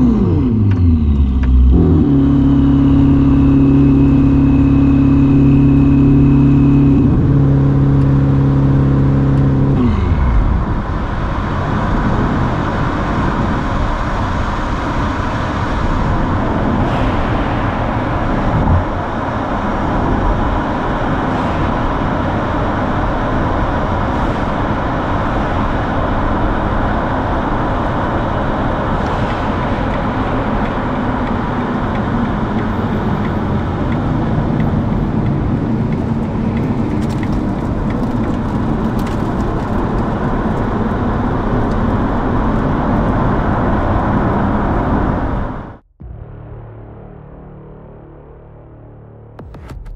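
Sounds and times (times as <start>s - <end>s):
car engine note: 0.0s - 12.0s, 45.2s - 49.8s
tyre and road noise: 0.0s - 47.2s.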